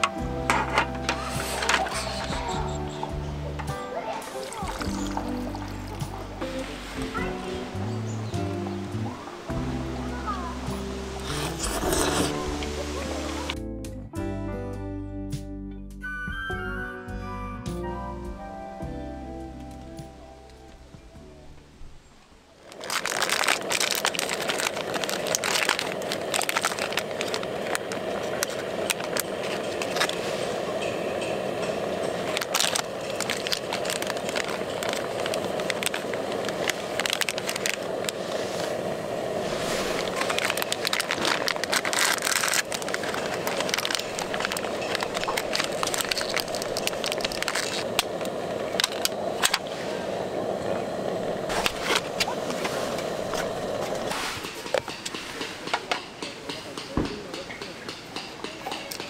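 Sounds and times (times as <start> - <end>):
plastic wrappers crinkling: 4.4 - 6.0, 22.6 - 30.3, 32.0 - 49.7.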